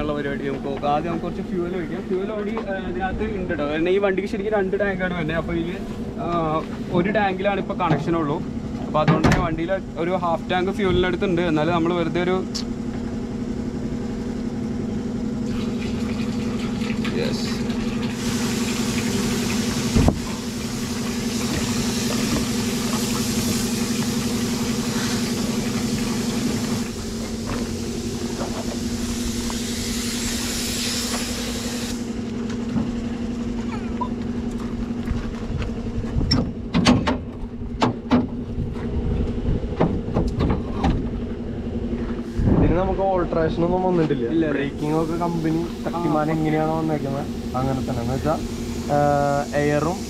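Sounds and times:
diesel truck engine idling: 0.0s - 50.0s
hiss: 17.5s - 32.3s, 44.8s - 50.0s.

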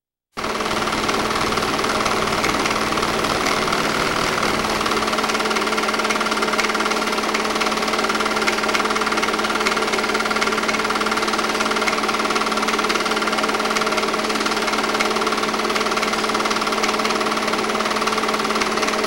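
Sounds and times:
projector motor hum: 0.4s - 12.6s.

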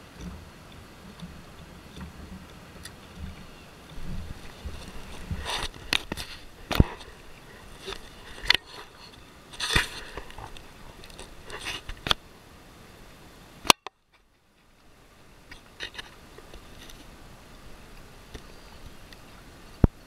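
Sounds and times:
wind and water hiss: 0.0s - 20.0s
kayak knocks and scrapes: 1.2s - 12.2s.

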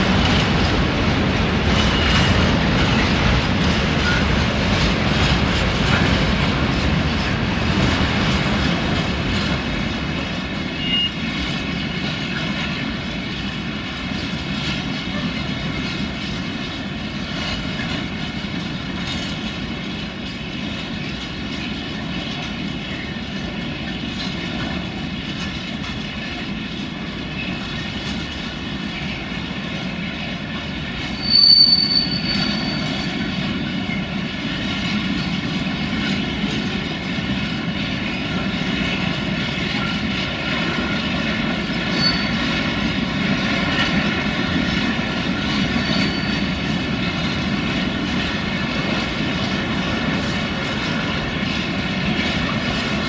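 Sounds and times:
steel wheels rumbling on rail: 0.0s - 53.0s
high-pitched wheel squeal: 31.2s - 33.2s, 41.9s - 42.4s, 45.8s - 46.5s.

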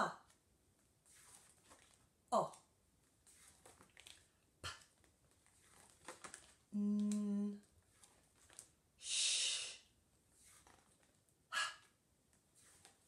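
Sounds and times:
woman saying phonics sounds: 0.0s - 0.3s, 2.3s - 2.6s, 6.8s - 7.6s.

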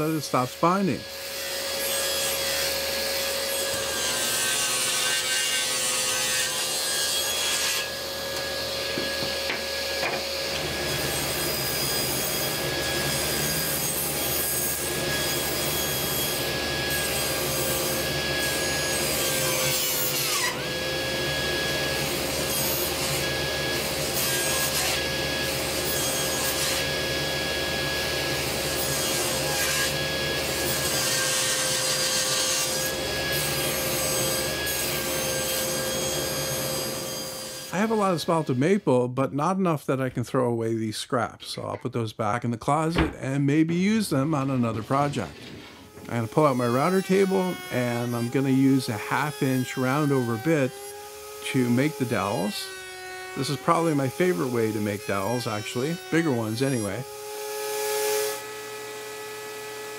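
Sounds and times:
table saw cutting wood: 0.0s - 39.0s, 42.9s - 59.9s.

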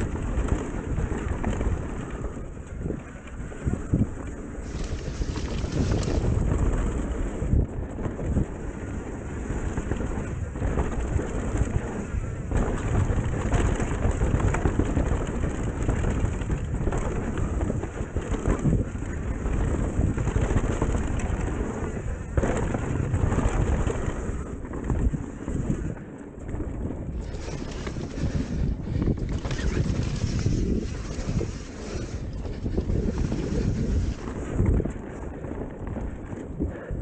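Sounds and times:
bike tyres rumbling on dirt: 0.0s - 37.0s
wind buffeting microphone: 0.0s - 37.0s.

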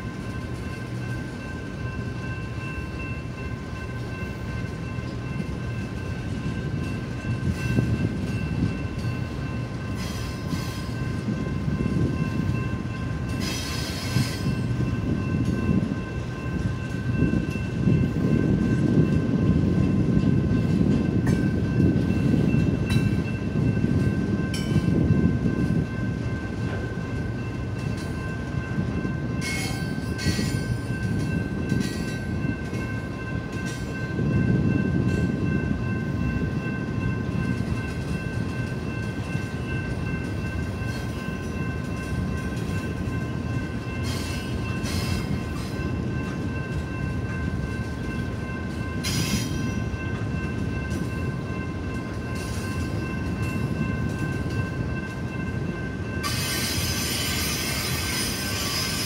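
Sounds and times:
train wheels rumbling on rail: 0.0s - 59.0s
high screeches and clanks: 56.2s - 59.0s.

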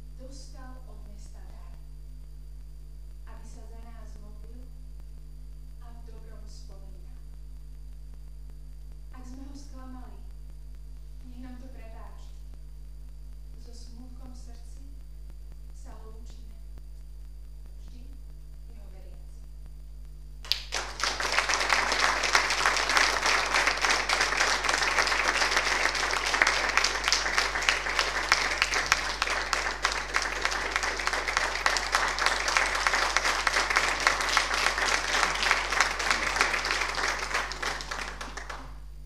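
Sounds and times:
audience applauding: 20.4s - 38.8s.

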